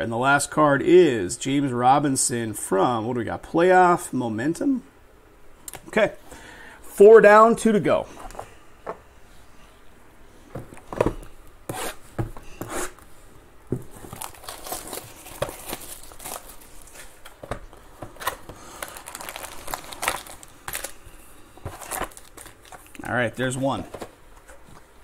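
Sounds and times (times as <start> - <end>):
plastic wrap crinkling: 13.8 - 23.8.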